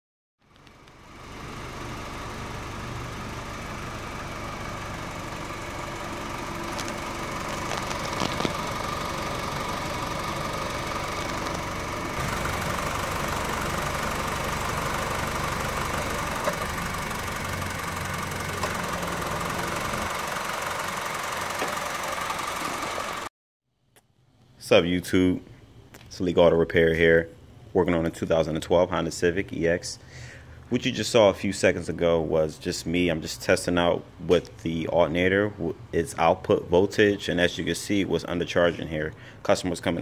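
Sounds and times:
car engine idling: 0:00.5 - 0:23.3.

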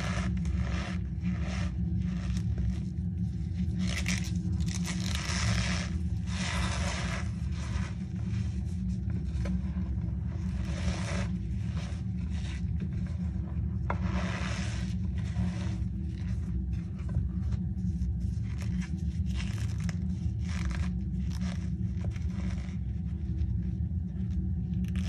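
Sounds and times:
steady low hum: 0:00.0 - 0:25.0
squeaky crunchy powder squeezes: 0:03.6 - 0:08.0.

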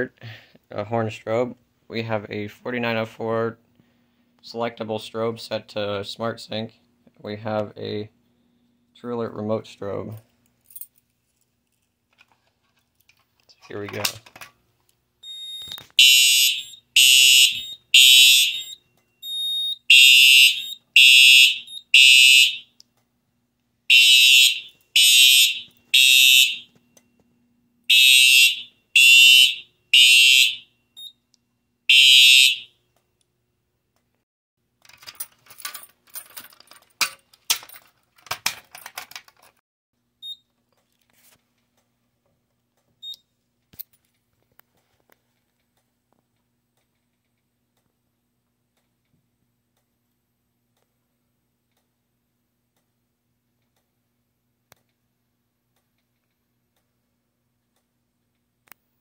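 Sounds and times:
handling clicks and rattles: 0:10.2 - 0:14.6, 0:34.8 - 0:39.6
fire alarm horn blasts: 0:15.2 - 0:22.8, 0:23.9 - 0:26.7, 0:27.9 - 0:31.1, 0:31.9 - 0:32.8.

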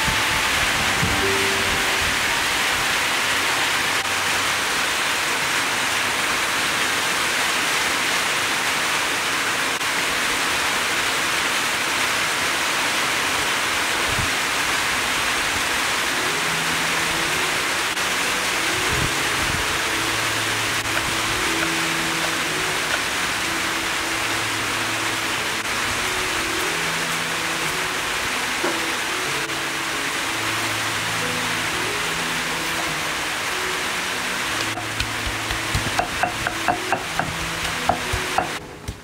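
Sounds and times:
steady rushing hiss: 0:00.0 - 0:39.0.

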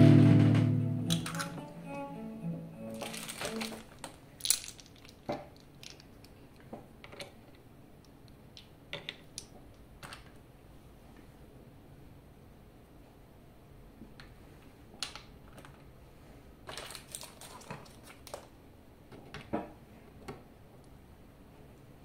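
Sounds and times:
guitar note through effects pedal: 0:00.0 - 0:03.0.

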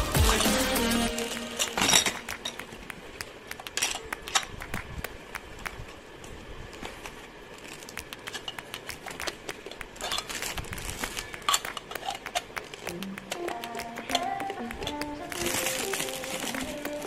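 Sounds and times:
background music melody: 0:00.0 - 0:02.7
plastic toy parts clicking: 0:07.7 - 0:17.0
plastic wrap rustling: 0:14.9 - 0:17.0.

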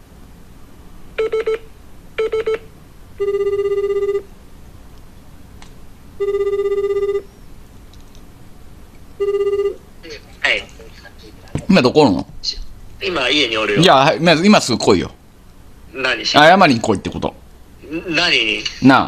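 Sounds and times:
phone ringback tone: 0:01.2 - 0:04.3, 0:06.2 - 0:07.3, 0:09.2 - 0:09.8.

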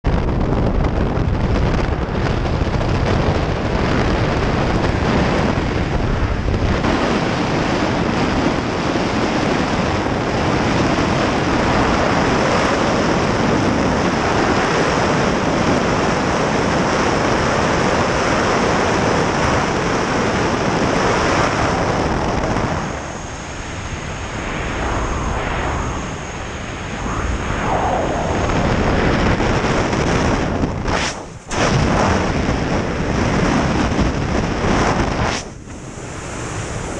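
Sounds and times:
wind rushing over microphone: 0:00.0 - 0:36.9
airplane engine rumble: 0:19.5 - 0:36.9
faint high whine: 0:21.1 - 0:33.2, 0:34.0 - 0:36.9.

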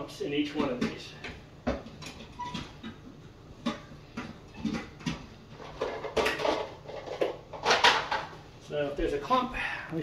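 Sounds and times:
kitchen things clicking and knocking: 0:00.4 - 0:08.4.

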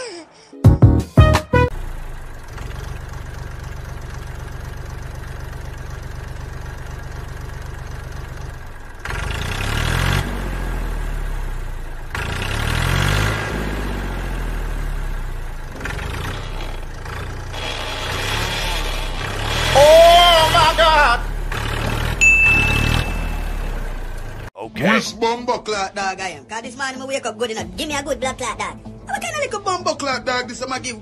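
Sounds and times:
vehicle engine revving: 0:01.6 - 0:24.5.

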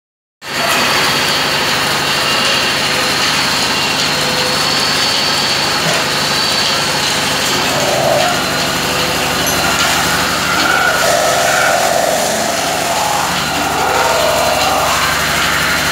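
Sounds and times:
lathe machines droning: 0:01.0 - 0:15.9
machine squeal: 0:03.4 - 0:15.9.

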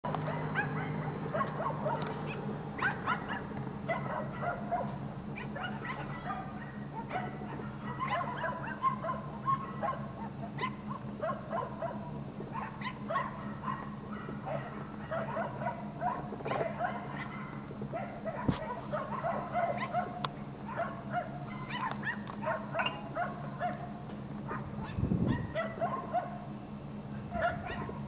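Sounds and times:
steady low hum: 0:00.0 - 0:28.0
many dogs barking: 0:00.1 - 0:26.6, 0:27.2 - 0:28.0.

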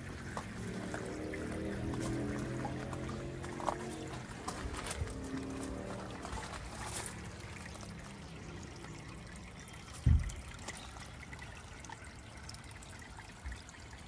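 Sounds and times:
water trickling: 0:00.0 - 0:14.0
low thump: 0:10.0 - 0:10.4.

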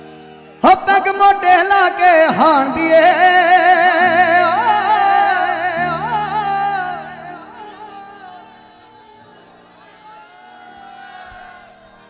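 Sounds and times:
man singing long ornamented note: 0:00.6 - 0:09.4.

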